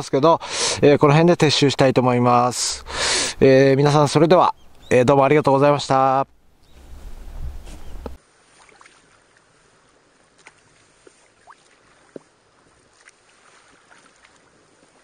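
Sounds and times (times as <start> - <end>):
wind buffeting microphone: 6.6 - 8.2
kayak paddling in water: 6.6 - 15.0.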